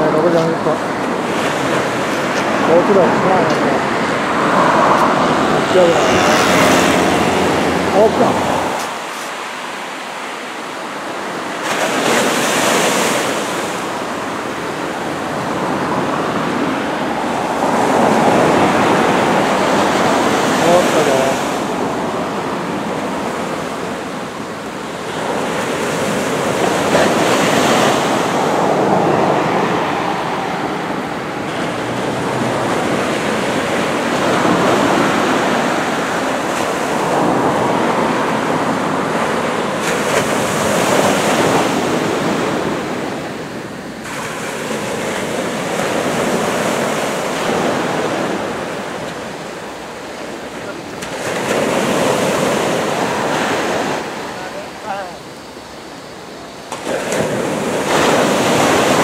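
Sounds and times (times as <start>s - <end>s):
ocean waves breaking: 0.0s - 59.0s.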